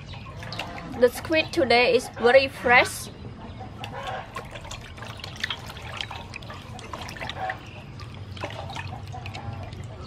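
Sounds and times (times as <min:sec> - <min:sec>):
water splashing in metal basin: 0:00.1 - 0:01.4, 0:03.8 - 0:10.0.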